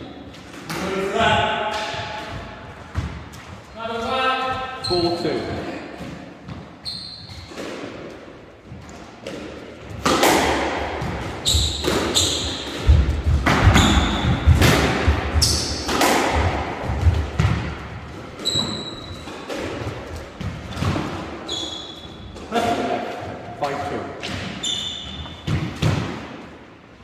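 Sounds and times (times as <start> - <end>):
squash ball hitting rackets and walls: 0.0 - 26.9
shoes squeaking on wooden floor: 4.5 - 7.6, 11.4 - 14.6, 18.3 - 19.5, 21.4 - 22.4, 24.5 - 25.7.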